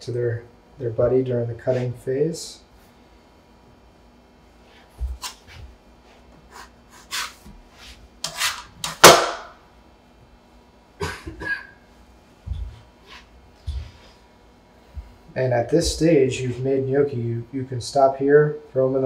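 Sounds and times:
bench scraper scraping wooden board: 6.5 - 8.9.

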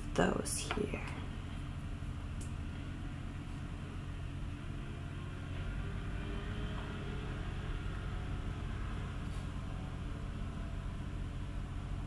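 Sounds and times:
machine rumble with hiss: 0.0 - 12.0.

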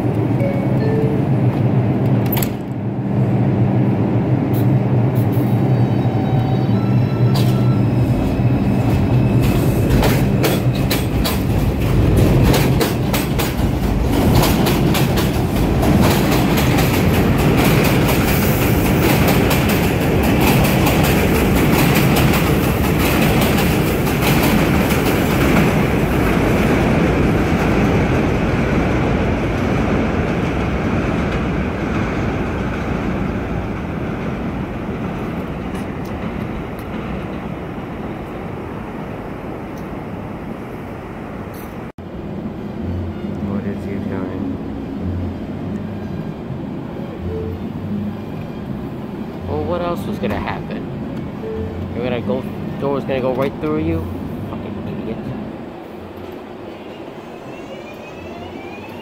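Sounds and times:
subway train low hum: 0.0 - 59.0
train rumbling on elevated track: 0.0 - 59.0
wheels clicking over rail joints: 9.9 - 26.5.

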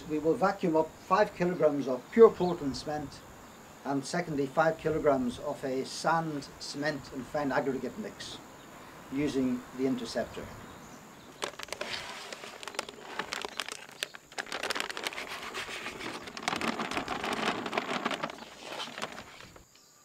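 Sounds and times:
powder pouring into plastic tub: 11.3 - 19.6
plastic bag crinkling: 11.3 - 19.7.

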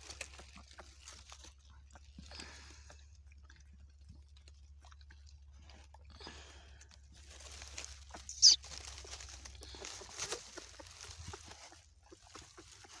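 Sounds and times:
straw rustling and crunching: 0.0 - 2.2, 6.5 - 13.0
sharp high-pitched sound: 8.3 - 8.6.

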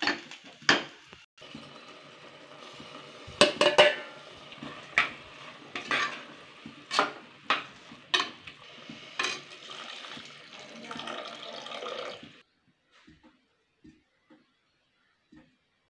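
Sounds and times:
spoon scraping pressure cooker: 3.4 - 8.4
water pouring: 8.6 - 12.4.

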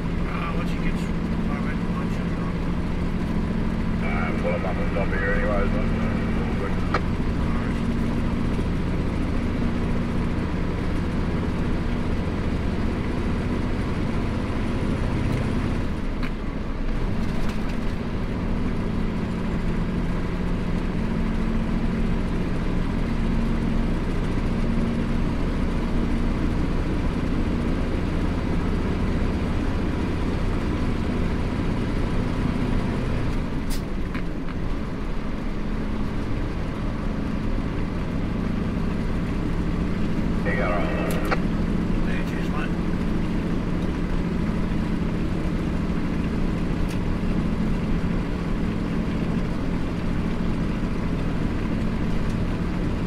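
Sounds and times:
diesel truck engine droning: 0.0 - 53.0.

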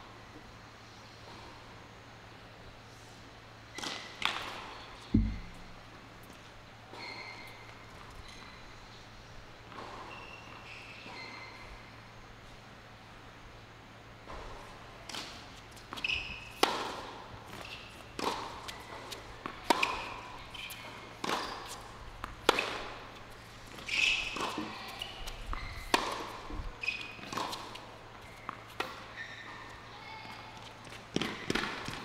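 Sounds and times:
ball bouncing on hard court: 5.1 - 5.8
tennis ball struck by rackets: 5.1 - 5.8, 25.9 - 26.4
shoe squeaks: 7.0 - 8.6, 10.0 - 11.7, 16.0 - 16.6, 23.8 - 26.0, 26.8 - 27.3, 29.1 - 30.2.

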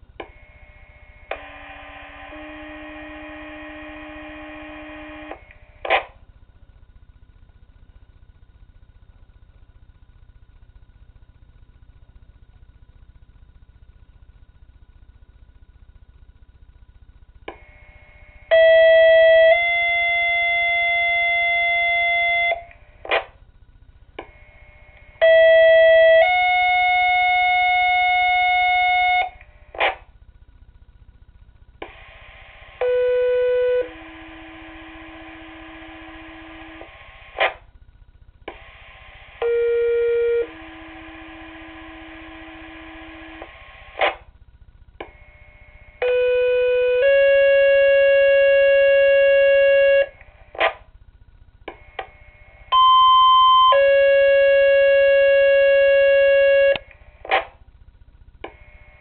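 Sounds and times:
buzzy two-tone pager tones: 0.2 - 6.1, 17.5 - 23.3, 24.2 - 30.0, 31.8 - 37.6, 38.5 - 44.3, 45.0 - 50.8, 51.7 - 57.6
two-tone pager tones: 52.7 - 57.5.

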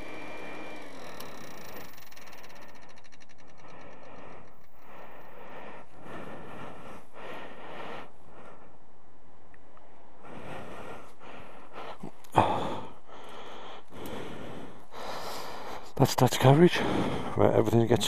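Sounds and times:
person breathing noisily: 1.5 - 9.0, 10.1 - 16.0, 16.7 - 17.4.

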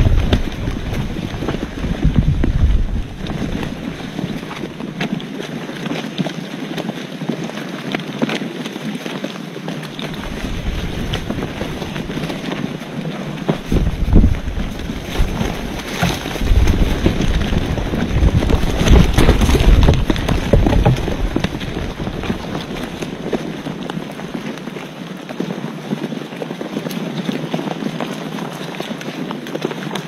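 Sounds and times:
wind buffeting microphone: 0.0 - 5.8, 9.9 - 25.0.

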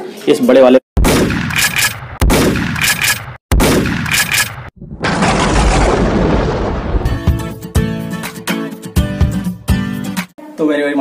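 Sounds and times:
rumbling noise: 4.8 - 7.5
cinematic booms: 4.8 - 7.8.

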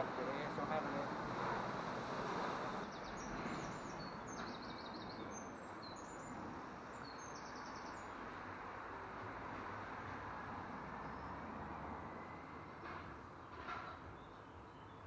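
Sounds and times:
outdoor background noise: 0.0 - 15.0
small birds singing: 2.8 - 8.3, 11.0 - 11.5, 14.1 - 15.0.

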